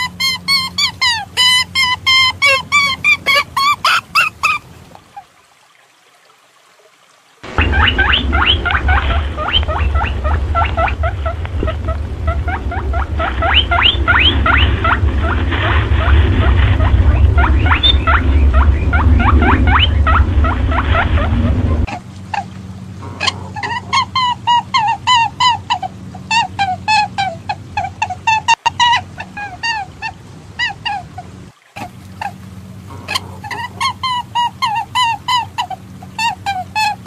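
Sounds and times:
low rumble: 0:07.4 - 0:26.4.

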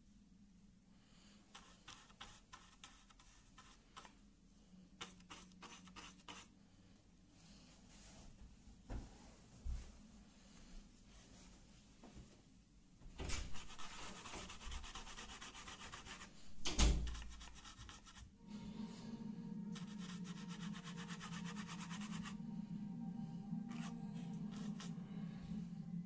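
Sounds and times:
paintbrush scrubbing on canvas: 0:01.5 - 0:04.2, 0:05.0 - 0:06.5, 0:13.5 - 0:18.3, 0:19.7 - 0:22.4, 0:23.7 - 0:25.0
steady low hum: 0:14.5 - 0:26.0.

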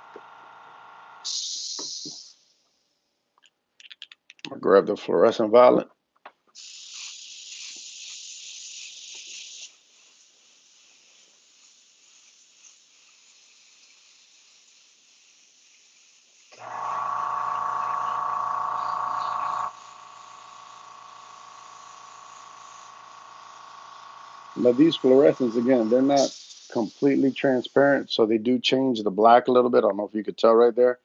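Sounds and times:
air compressor humming: 0:00.0 - 0:02.2, 0:16.5 - 0:28.0
airbrush hissing: 0:01.2 - 0:02.5, 0:06.6 - 0:28.3.

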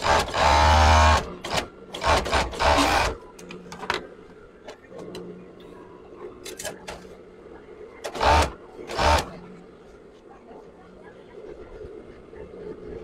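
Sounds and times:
overlock machine stitching: 0:00.0 - 0:03.2, 0:08.1 - 0:09.4.

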